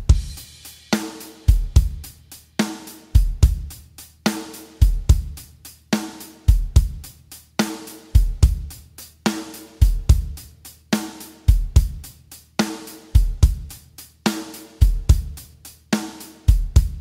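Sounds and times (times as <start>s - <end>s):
deep bass drum beats: 0.0s - 0.6s, 1.5s - 2.2s, 3.2s - 3.9s, 4.8s - 5.6s, 6.5s - 7.2s, 8.2s - 8.9s, 9.8s - 10.6s, 11.5s - 12.2s, 13.2s - 13.8s, 14.8s - 15.5s, 16.5s - 17.0s
pitched drum hits: 0.0s - 3.7s.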